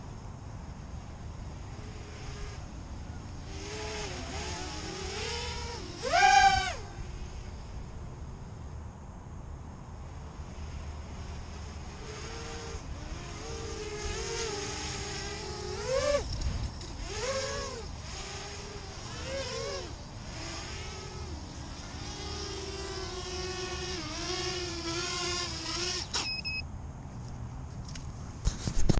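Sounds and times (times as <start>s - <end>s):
drone motors whining: 1.1s - 8.6s, 10.1s - 26.6s
short high electronic beeps: 26.2s - 26.6s.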